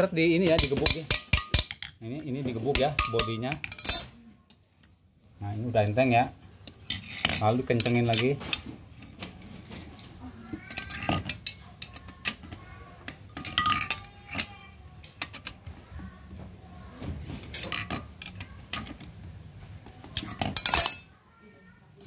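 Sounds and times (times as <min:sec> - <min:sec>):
socket wrench clinking on bolts: 0:02.8 - 0:04.2, 0:20.5 - 0:21.1
metal clatter: 0:20.2 - 0:21.2.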